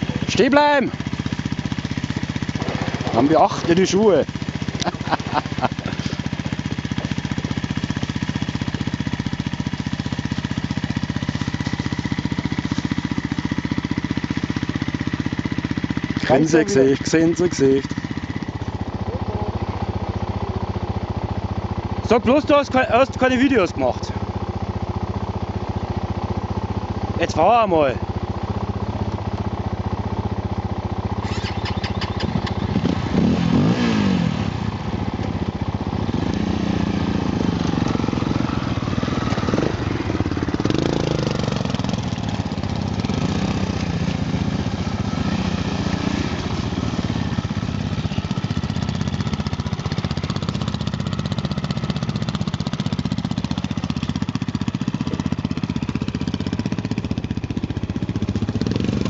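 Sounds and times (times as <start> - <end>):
quad bike engine revving: 0.0 - 59.0.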